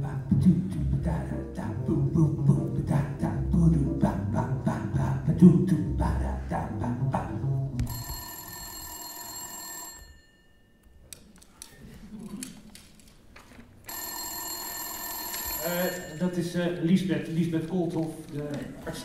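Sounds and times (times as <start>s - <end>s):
music: 0.0s - 7.9s
telephone ringing: 7.9s - 11.0s, 13.9s - 16.6s.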